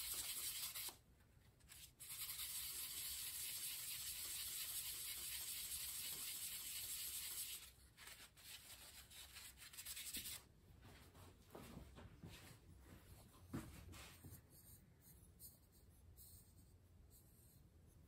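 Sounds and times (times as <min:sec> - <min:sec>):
scratchy rubbing strokes: 0:00.0 - 0:01.0, 0:01.7 - 0:10.4.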